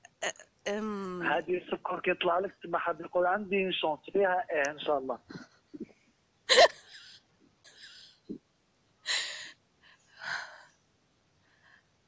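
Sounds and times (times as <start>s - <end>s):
woman laughing breathily: 6.5s - 8.2s, 9.1s - 9.5s
woman gasping: 9.1s - 9.6s.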